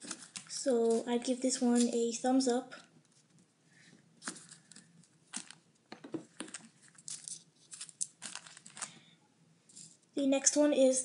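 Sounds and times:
foam toy crinkling and rustling: 0.0 - 1.9, 4.2 - 5.7, 6.3 - 9.0.

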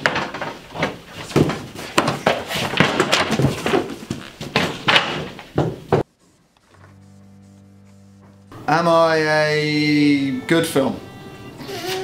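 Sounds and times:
clatter of footsteps and knocks: 0.0 - 6.1.

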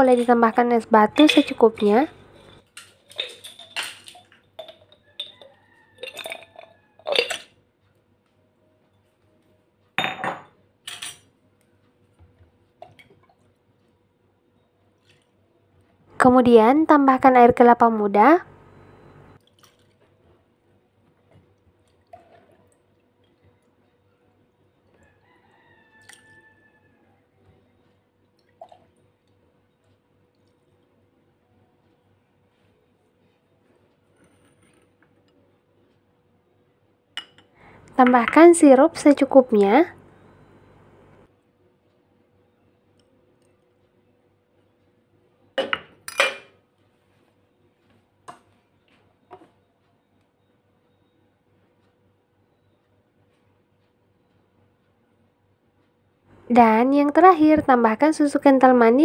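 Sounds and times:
ice cubes clinking in glass: 1.2 - 7.5
distant rooster crowing: 5.1 - 7.2, 25.0 - 27.4.

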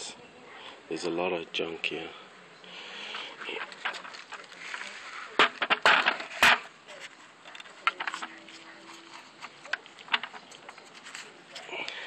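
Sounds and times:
hard plastic knocks and clatter: 5.4 - 6.7.

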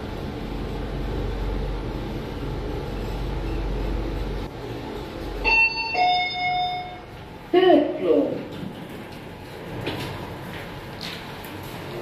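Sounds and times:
elevator hum and rumble: 0.0 - 12.0
elevator arrival chime: 5.4 - 7.2.

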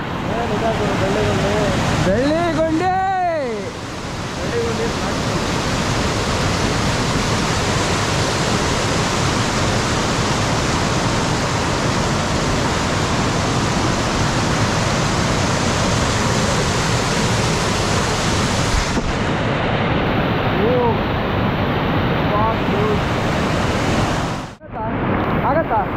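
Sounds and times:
waterfall crashing: 0.0 - 25.9.

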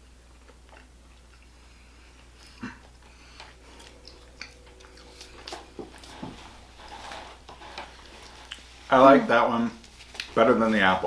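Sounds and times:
quiet chewing: 0.3 - 8.9.

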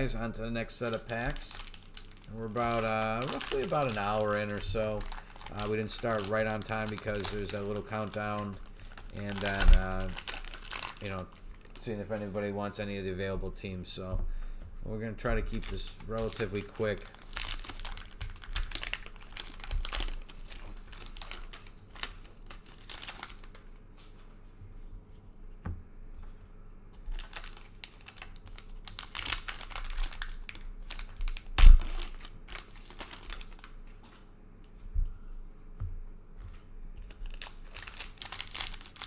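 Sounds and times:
wrappers tearing and crinkling: 0.7 - 12.3, 15.5 - 24.2, 27.1 - 34.3, 37.0 - 39.0
cards rustling: 0.8 - 12.7, 15.5 - 24.3, 36.5 - 39.0.

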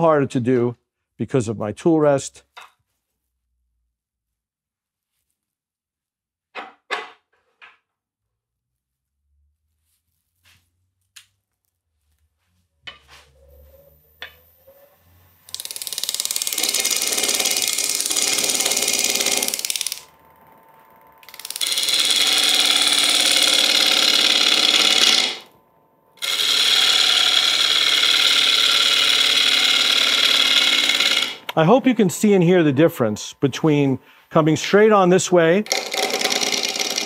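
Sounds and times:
faint lathe motor hum: 14.6 - 31.6, 35.6 - 37.0
lathe tool cutting wood: 15.5 - 20.2, 20.9 - 25.5, 26.2 - 31.6, 35.6 - 37.0.

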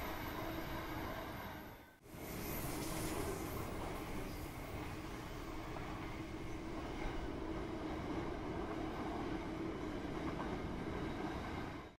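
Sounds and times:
train rumbling: 0.0 - 12.0.

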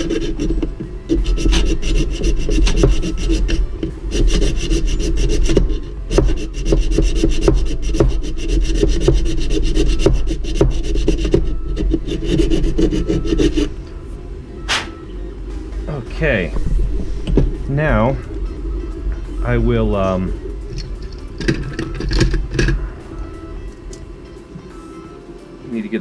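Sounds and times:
hand file rasping on plastic: 0.0 - 13.8
sharp knock: 14.7 - 15.0.

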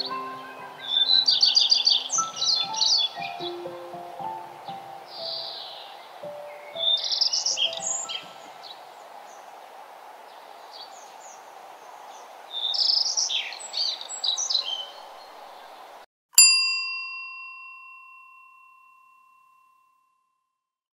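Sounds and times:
bright bell chime: 0.0 - 5.7, 16.4 - 20.1
birds chirping: 0.0 - 16.0
steady hiss: 0.0 - 16.0.

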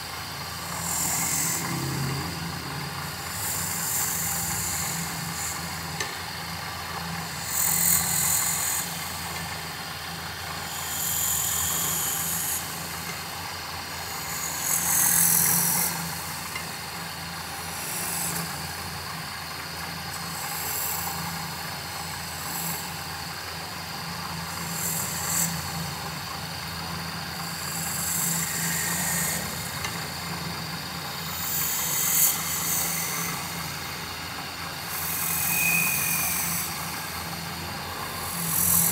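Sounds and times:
wood lathe motor humming: 0.0 - 38.9
chisel cutting spinning wood: 24.4 - 38.9.

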